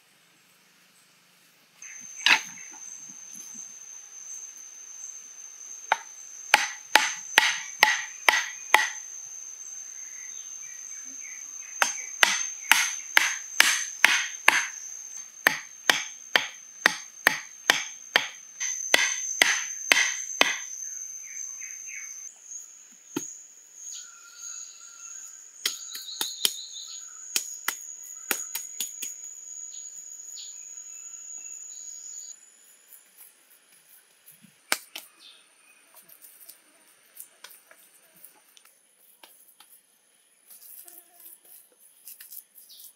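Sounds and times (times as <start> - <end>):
insects buzzing: 0.0 - 42.9
wood mallet knocking stakes: 5.9 - 9.0, 11.8 - 14.8, 15.4 - 20.7.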